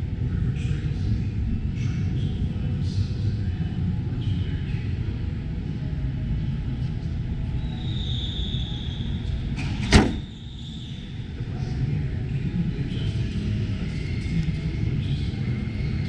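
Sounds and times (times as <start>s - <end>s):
car bonnet shutting bang: 9.7s - 10.3s.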